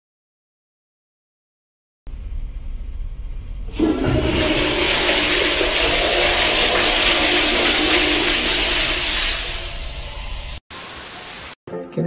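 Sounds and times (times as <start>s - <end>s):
toilet flushing: 3.7s - 10.6s.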